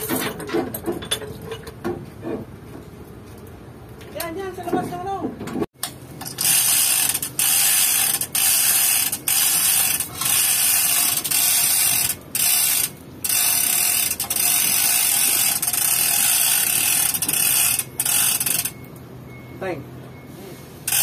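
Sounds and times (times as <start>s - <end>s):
ratchet clicking: 5.8s - 18.9s
hoist chain rattling: 6.2s - 18.9s.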